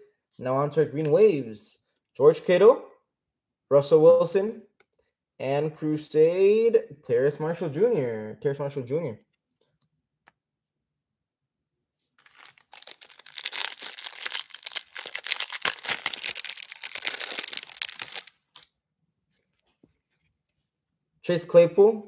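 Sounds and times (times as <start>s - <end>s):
plastic wrapper tearing and crinkling: 12.2s - 18.7s.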